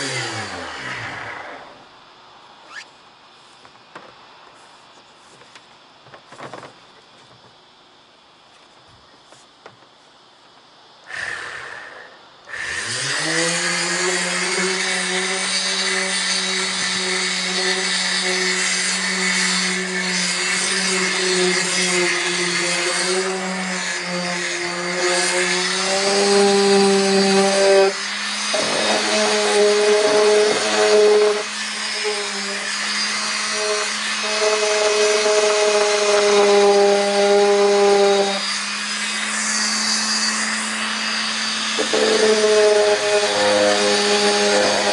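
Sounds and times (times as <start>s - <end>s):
electric sander running: 0.0s - 1.9s, 12.5s - 44.9s.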